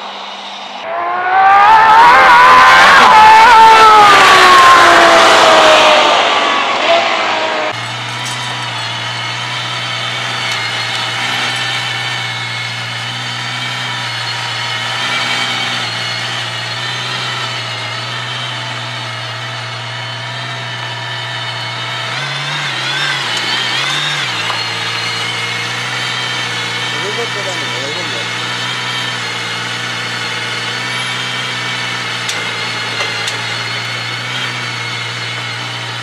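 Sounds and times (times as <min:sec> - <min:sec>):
car engine idling: 0:07.6 - 0:36.0.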